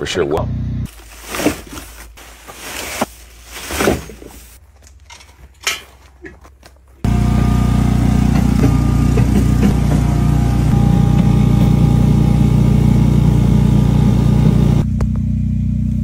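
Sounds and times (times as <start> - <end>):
machine drone: 7.0 - 16.0.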